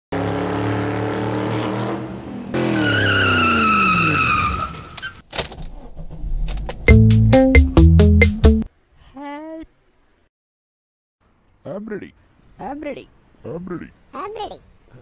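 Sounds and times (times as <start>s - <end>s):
tire screech: 1.2s - 6.8s.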